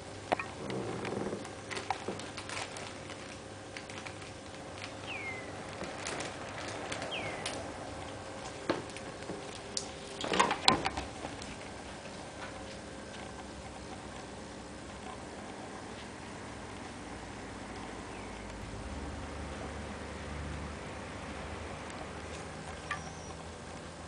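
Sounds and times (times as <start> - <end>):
kitten chirps: 22.9 - 23.4.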